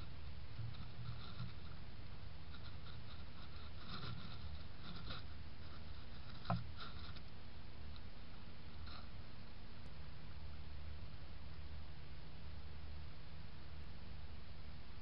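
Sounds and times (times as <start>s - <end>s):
rustling in dry leaves and grass: 0.0s - 7.5s
low camera hum: 0.0s - 15.0s.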